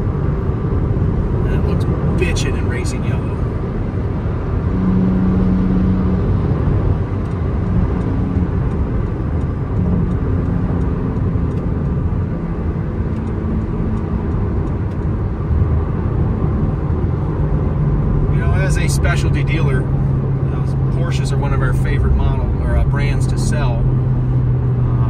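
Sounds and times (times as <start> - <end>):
car engine cruising: 0.0 - 25.0
road noise: 0.0 - 25.0.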